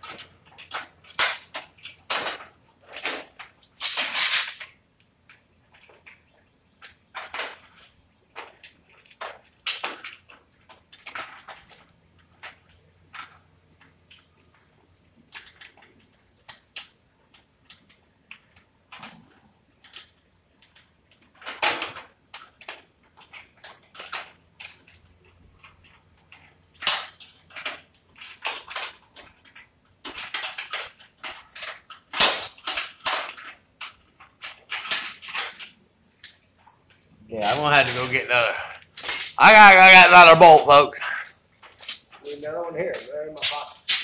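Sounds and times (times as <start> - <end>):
metal hardware clicks and clinks: 0.0 - 2.4.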